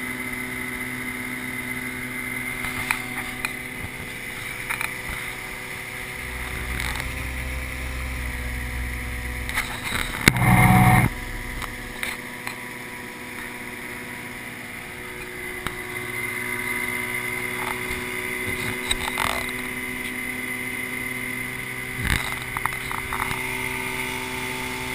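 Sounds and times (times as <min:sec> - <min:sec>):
outboard motor drone: 0:00.0 - 0:24.9
loud burst of noise: 0:05.4 - 0:15.1.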